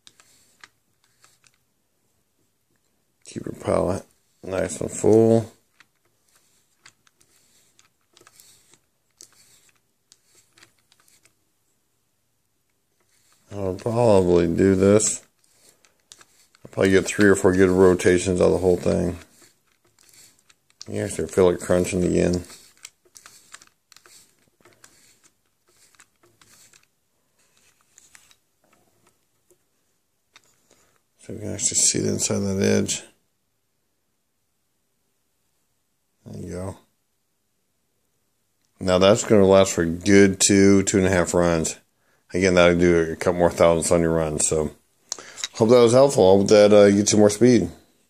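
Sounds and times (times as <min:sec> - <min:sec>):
wheel scratching in graphite powder: 0:00.0 - 0:01.6, 0:03.4 - 0:11.4, 0:12.9 - 0:29.1.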